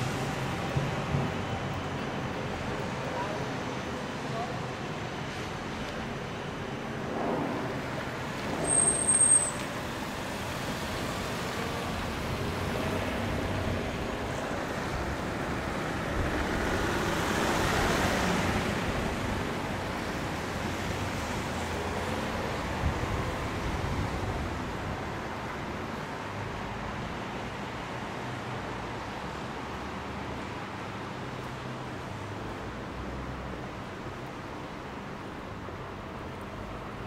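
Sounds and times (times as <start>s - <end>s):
city traffic noise: 0.0s - 37.0s
high squeal: 8.5s - 9.7s.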